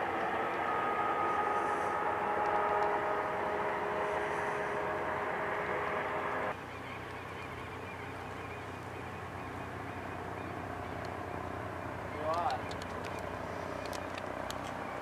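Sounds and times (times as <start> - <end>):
faint wavering high calls: 0.0 - 8.6
helicopter flying overhead: 0.0 - 15.0
low steady hum: 0.0 - 15.0.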